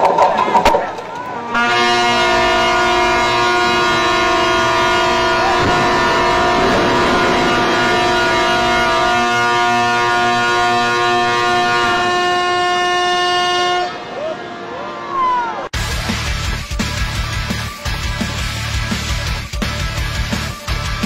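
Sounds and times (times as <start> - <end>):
ship horns blasting: 1.5 - 14.7.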